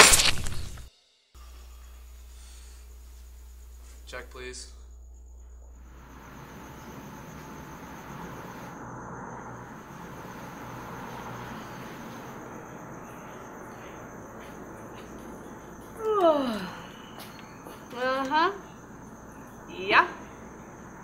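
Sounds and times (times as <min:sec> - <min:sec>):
even ambient hiss: 0:01.4 - 0:14.4.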